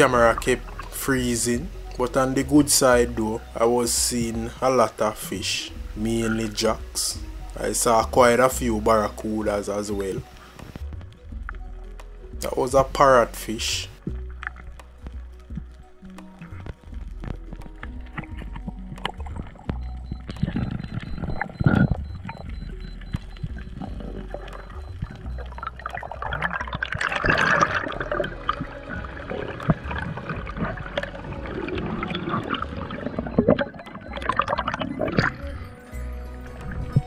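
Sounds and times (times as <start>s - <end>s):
water swishing and gurgling: 0.0s - 37.0s
small clicks underwater: 14.1s - 35.5s.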